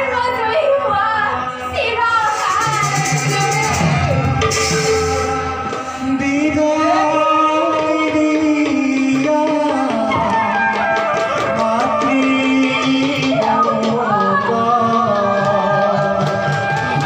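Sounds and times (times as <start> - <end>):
steady drum accompaniment: 1.8 - 17.0
person singing long held notes: 2.7 - 17.0.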